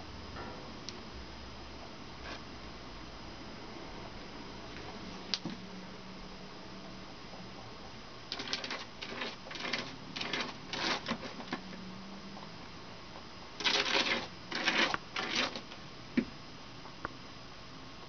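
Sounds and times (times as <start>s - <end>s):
rabbit scratching cardboard: 8.3s - 11.8s, 13.6s - 15.8s.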